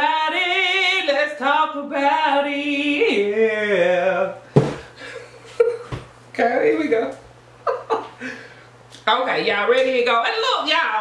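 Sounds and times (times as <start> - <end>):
woman singing unaccompanied: 0.0 - 3.7
short sharp knock: 4.6 - 4.9.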